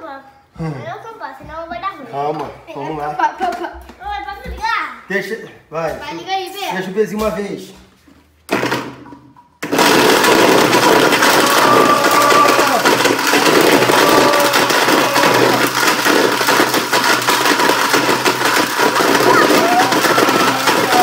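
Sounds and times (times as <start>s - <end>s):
blender grinding hard pieces: 9.6s - 21.0s.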